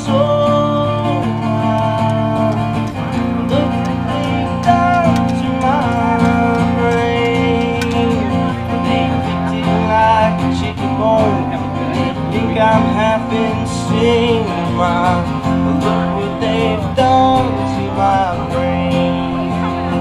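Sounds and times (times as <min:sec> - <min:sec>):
country music with guitar: 0:00.0 - 0:20.0.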